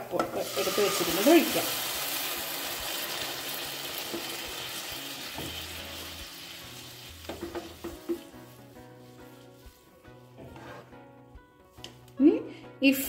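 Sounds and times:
liquid sizzling in a hot pan: 0:00.0 - 0:10.2
spatula knocking and scraping: 0:07.2 - 0:11.1.

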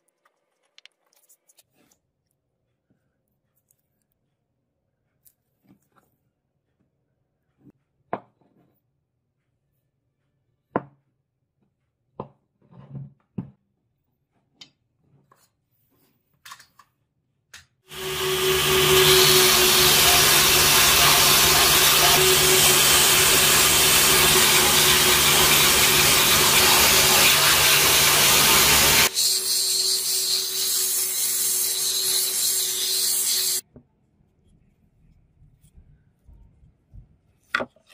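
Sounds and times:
belt sander grinding wood: 0:17.9 - 0:33.6.

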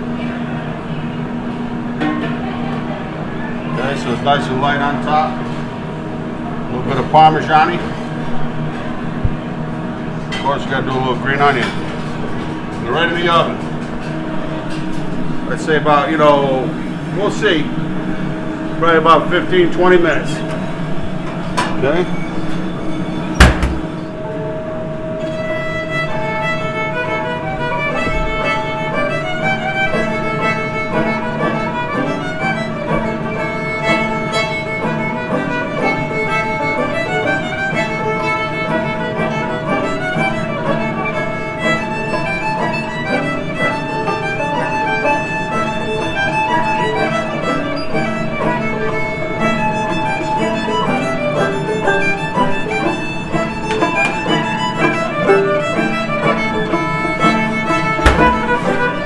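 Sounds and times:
sharp knock: 0:23.4 - 0:23.9, 0:58.0 - 0:58.4
fiddle playing: 0:25.2 - 0:59.0
banjo picking: 0:27.9 - 0:59.0.

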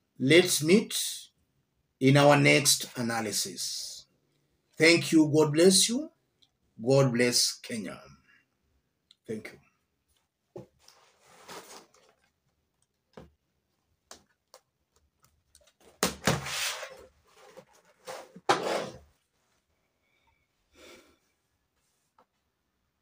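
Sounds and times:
rustling: 0:10.8 - 0:12.6.

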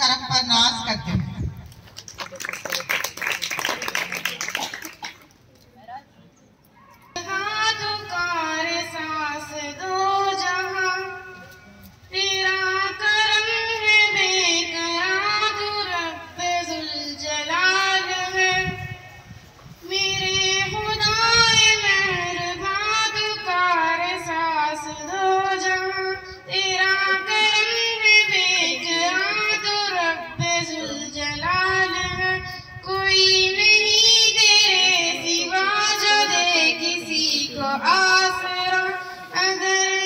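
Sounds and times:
girl singing unaccompanied: 0:07.2 - 0:11.4, 0:12.1 - 0:19.1, 0:19.8 - 0:40.0.

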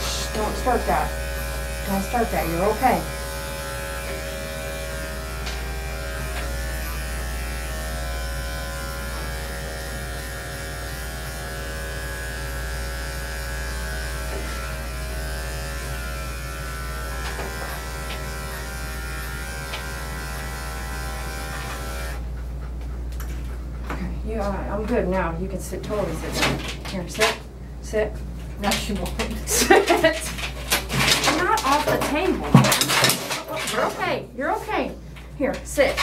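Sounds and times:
electric clippers buzzing: 0:00.0 - 0:22.3.

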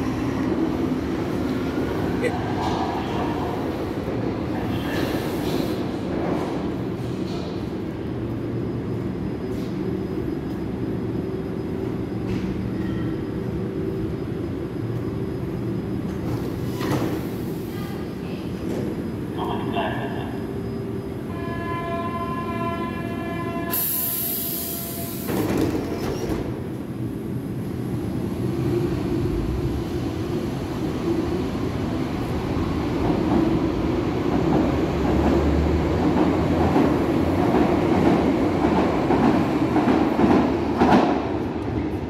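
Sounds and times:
train wheels and motors rumbling: 0:00.0 - 0:21.4.

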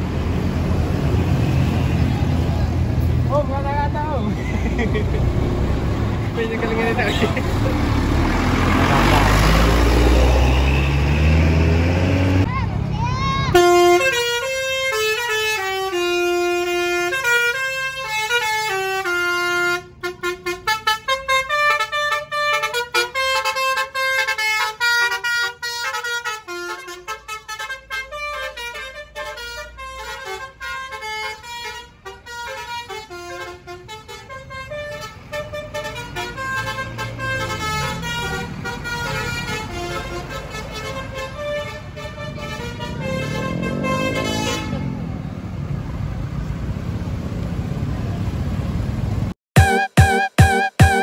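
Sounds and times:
bus musical horn playing a tune: 0:06.8 - 0:07.6, 0:13.5 - 0:45.1, 0:49.6 - 0:51.0.

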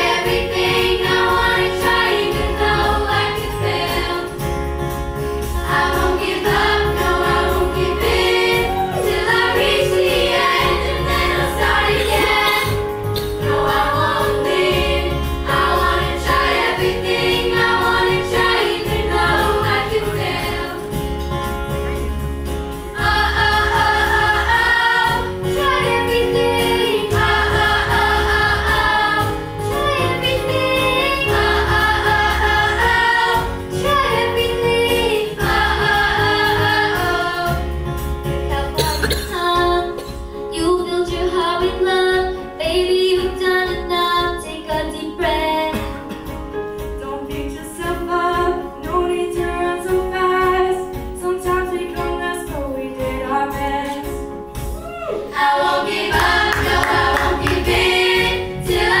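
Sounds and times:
children singing: 0:00.0 - 0:04.4, 0:05.6 - 0:20.9, 0:23.0 - 0:37.6, 0:55.2 - 0:59.0
instrumental accompaniment: 0:00.0 - 0:59.0.

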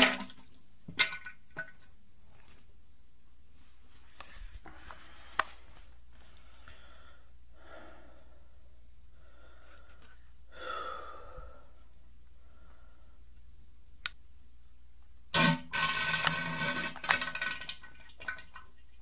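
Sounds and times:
person breathing and sighing: 0:04.7 - 0:13.3.

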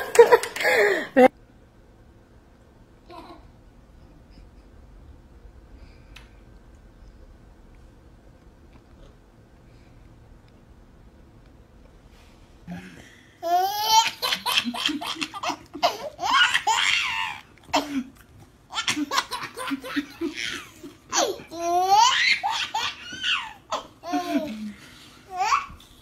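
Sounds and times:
baby laughing: 0:13.4 - 0:18.0, 0:18.7 - 0:25.8.

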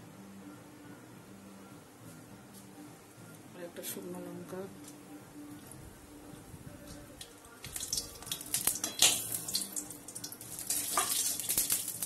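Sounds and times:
seeds sizzling in hot oil: 0:07.6 - 0:12.0.

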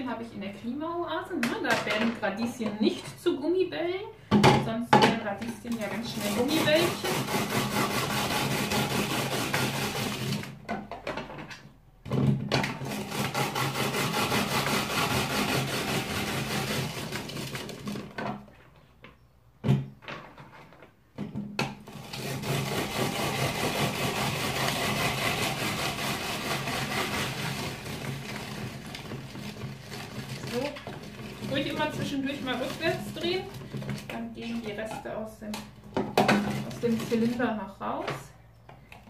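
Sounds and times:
rotary grater grinding: 0:05.8 - 0:10.5, 0:12.8 - 0:18.0, 0:21.8 - 0:34.0.

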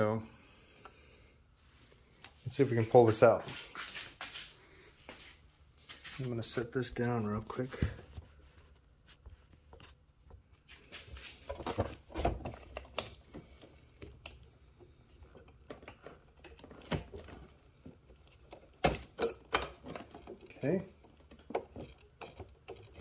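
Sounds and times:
clicks and knocks of handling parts: 0:07.7 - 0:23.0.

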